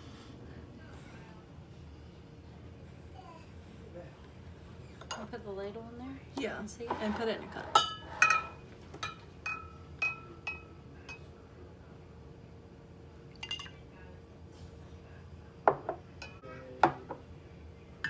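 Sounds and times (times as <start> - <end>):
metal ladle clinking against glass: 13.4 - 13.8.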